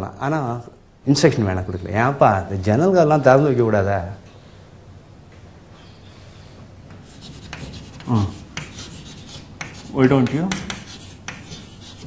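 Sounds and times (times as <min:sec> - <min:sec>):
chalk scratching on a chalkboard: 0:07.0 - 0:12.0.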